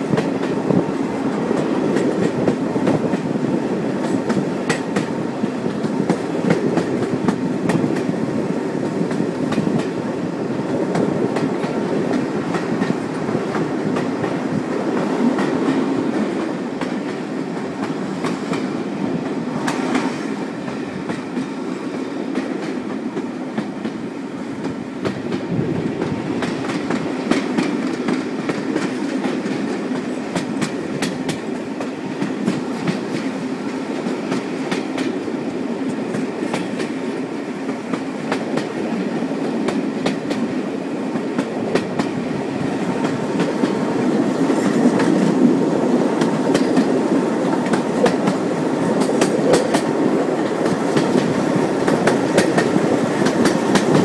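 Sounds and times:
train wheels rumbling on rails: 0.0s - 54.0s
wheels clicking over rail joints: 26.0s - 37.0s, 39.5s - 54.0s.

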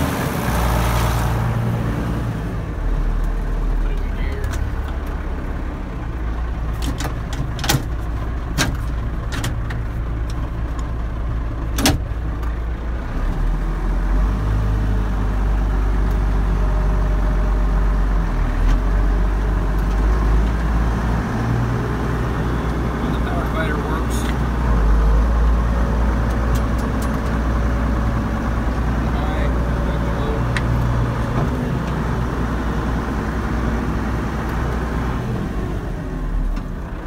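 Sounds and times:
tractor diesel engine running: 0.0s - 37.0s
sharp clicks and knocks: 6.8s - 10.9s.

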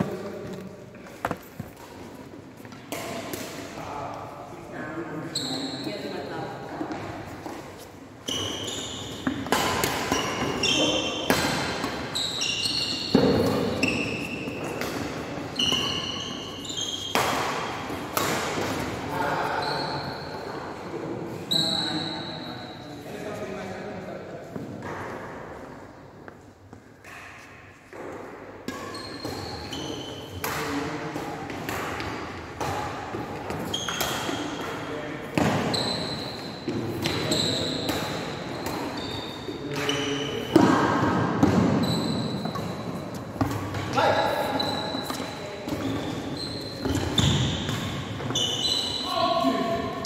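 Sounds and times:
shoes squeaking on court: 0.0s - 3.4s, 5.2s - 18.7s, 28.7s - 30.4s, 33.1s - 34.8s, 35.4s - 40.6s, 41.4s - 50.0s
racket hitting shuttlecock: 0.5s - 3.8s, 8.4s - 19.0s, 27.0s - 48.6s
racket striking shuttlecock: 9.2s - 10.6s, 11.2s - 12.2s.

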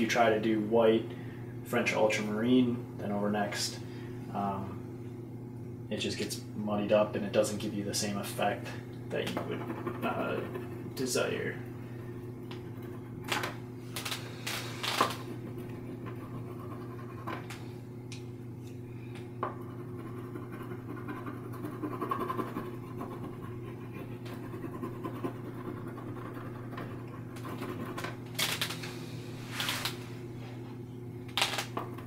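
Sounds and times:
steady low hum: 0.0s - 32.0s
sketching tool scratching: 9.2s - 11.0s, 15.1s - 17.4s, 19.6s - 28.1s.

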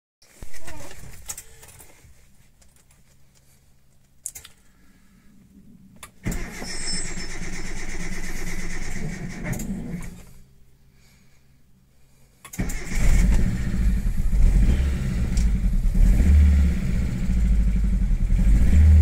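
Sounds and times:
engine starter cranking: 6.2s - 10.3s, 12.5s - 15.6s.

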